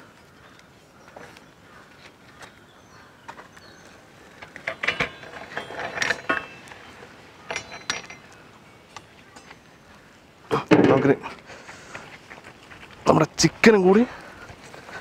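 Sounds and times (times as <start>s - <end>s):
metal rods clinking on pot: 4.6s - 8.4s.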